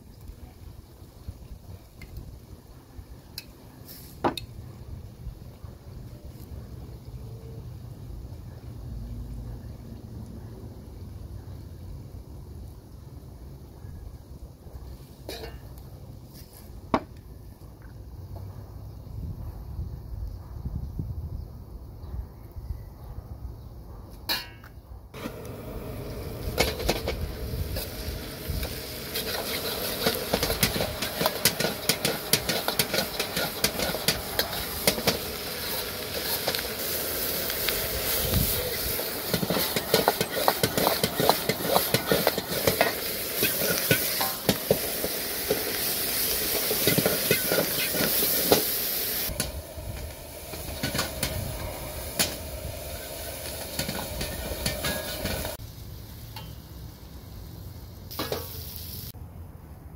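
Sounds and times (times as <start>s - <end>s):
meat sizzling in a frying pan: 26.2s - 56.3s, 57.0s - 59.1s
utensil stirring and scraping: 28.6s - 36.6s, 38.7s - 44.8s.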